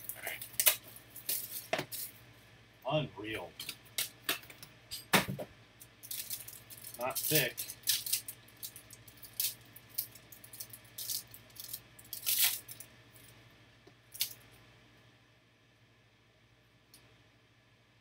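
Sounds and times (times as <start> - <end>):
foil wrapper crinkling and tearing: 0.0 - 2.1, 6.0 - 12.9.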